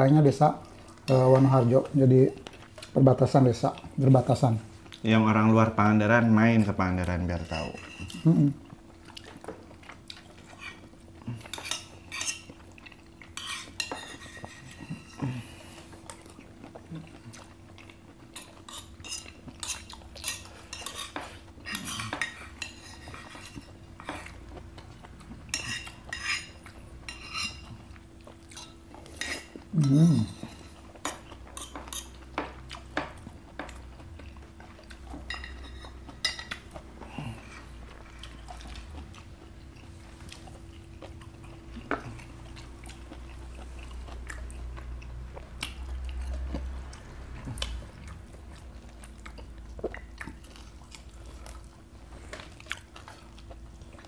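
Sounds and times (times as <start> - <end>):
chewing: 7.4 - 54.0
metal spoons clinking on plates: 35.3 - 36.6.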